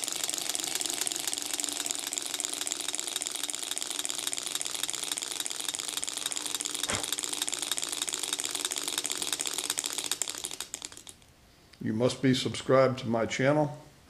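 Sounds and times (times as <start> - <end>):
engine mechanical clatter: 0.0 - 11.2.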